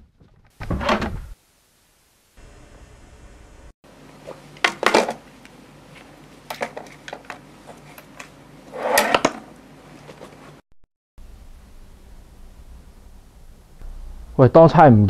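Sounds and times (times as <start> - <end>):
drawers pulled open: 8.7 - 9.5.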